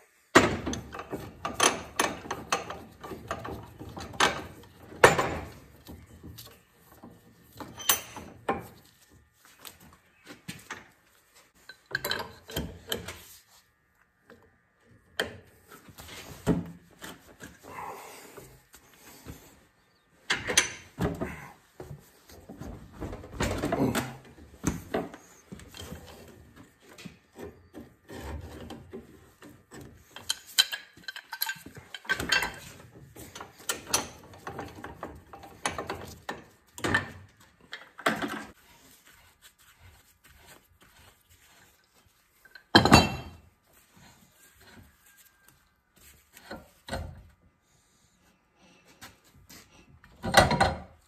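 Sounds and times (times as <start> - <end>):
metal wrench clanks and scrapes: 7.6 - 8.8, 11.6 - 13.3, 30.0 - 37.2.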